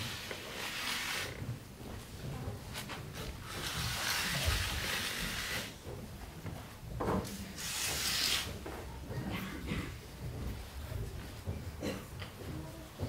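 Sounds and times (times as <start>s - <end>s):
wooden pole scraping dirt floor: 0.0s - 1.6s, 2.8s - 5.8s.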